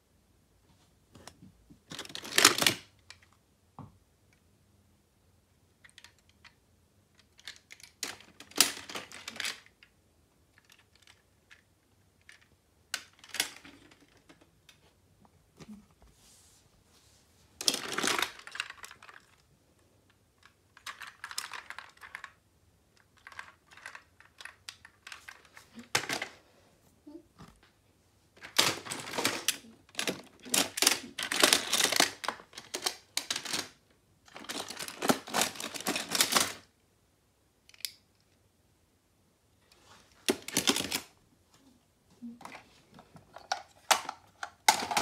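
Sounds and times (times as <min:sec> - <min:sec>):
toy cars clattering in plastic bin: 0:01.9 - 0:02.9, 0:07.2 - 0:09.8, 0:12.2 - 0:14.5, 0:17.6 - 0:19.4, 0:23.2 - 0:26.4, 0:28.4 - 0:36.7, 0:40.2 - 0:41.1, 0:43.2 - 0:45.0.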